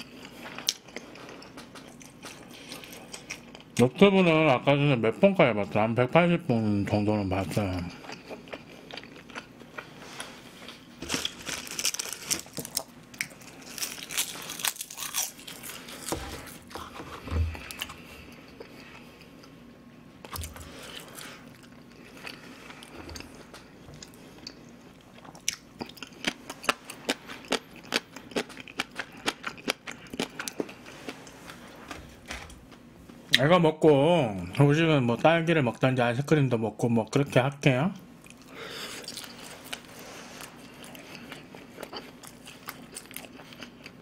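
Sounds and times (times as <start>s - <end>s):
person chewing food: 0.0s - 3.8s, 7.6s - 32.2s, 38.2s - 44.0s.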